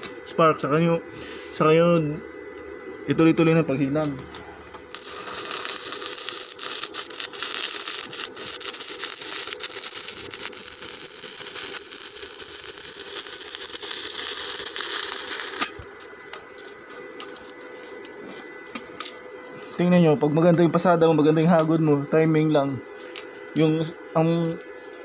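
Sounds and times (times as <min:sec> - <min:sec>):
welding arc crackling: 0:04.9 - 0:17.5.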